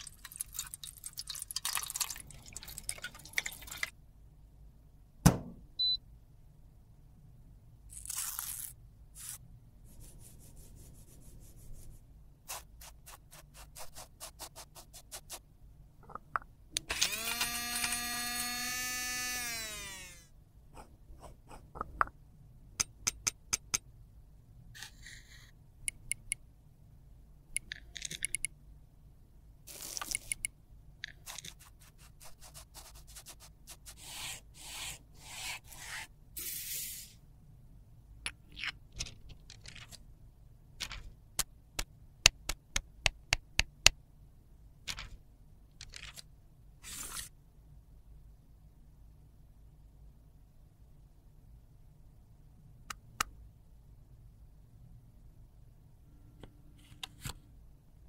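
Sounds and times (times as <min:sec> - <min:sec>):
wrapper tearing: 0:07.9 - 0:08.8
small electric grinder whirring: 0:16.9 - 0:20.3
clicks and scrapes: 0:38.3 - 0:40.0, 0:45.8 - 0:47.3.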